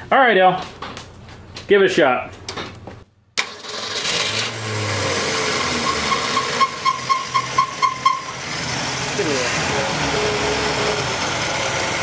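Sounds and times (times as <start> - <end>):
car engine starting up: 3.4 - 12.0.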